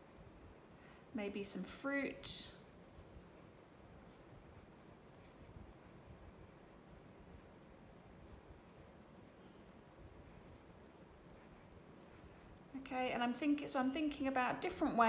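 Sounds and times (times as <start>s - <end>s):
pencil scratching on paper: 0.0s - 0.7s, 2.6s - 3.9s, 4.5s - 9.5s, 10.2s - 10.7s, 11.3s - 12.6s.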